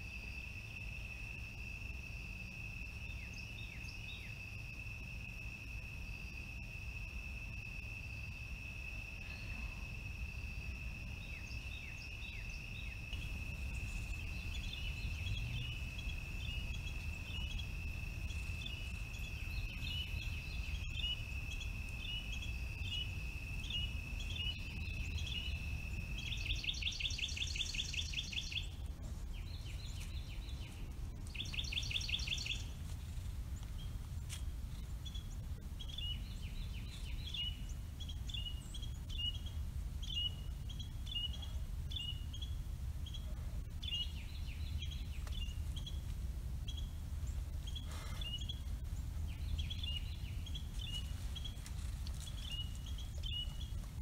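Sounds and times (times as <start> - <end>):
high-pitched insect trill: 0.0 - 33.3
low steady rumble: 0.0 - 54.0.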